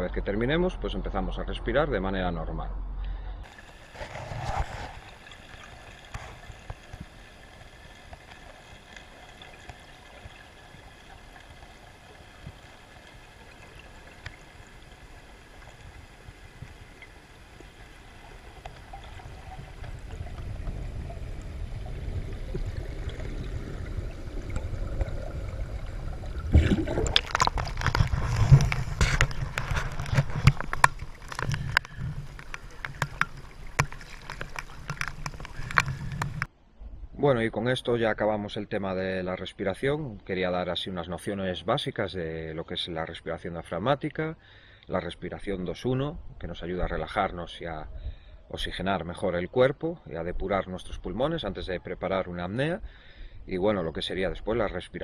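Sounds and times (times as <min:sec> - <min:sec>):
faint underwater hum: 0:00.0 - 0:40.5
water splashing and sloshing: 0:03.1 - 0:36.9.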